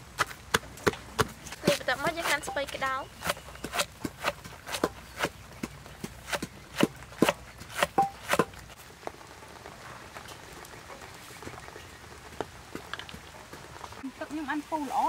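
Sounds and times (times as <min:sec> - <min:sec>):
knife chopping cabbage on board: 0:03.2 - 0:05.4, 0:06.2 - 0:08.5.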